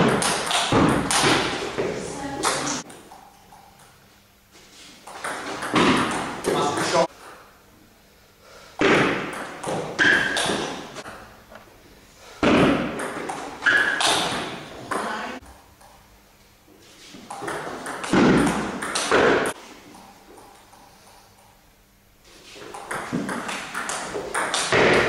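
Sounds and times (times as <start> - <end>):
table tennis ball hits: 0.0 - 3.9, 5.0 - 7.0, 8.8 - 11.2, 12.4 - 15.2, 17.2 - 19.6, 22.6 - 25.0.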